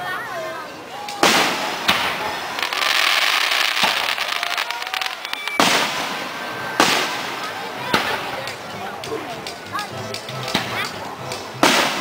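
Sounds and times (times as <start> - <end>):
fireworks hiss and crackling: 0.6 - 12.0
fireworks bangs: 1.0 - 8.7, 10.5 - 12.0.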